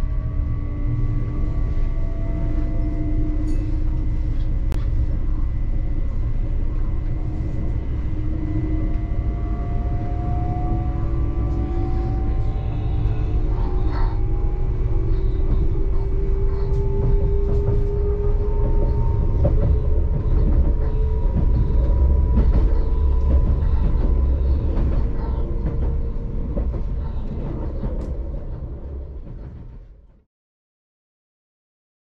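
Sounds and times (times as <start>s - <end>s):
faint rising whine: 0.0s - 26.7s
train low rumble: 0.0s - 30.3s
rail clicks: 11.4s - 29.8s.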